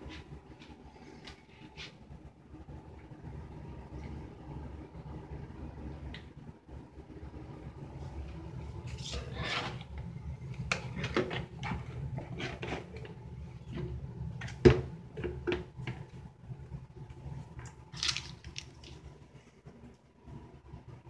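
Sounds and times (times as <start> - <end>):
steady low hum: 0.0 - 21.0
plastic bottles knocking and sliding: 10.7 - 16.0.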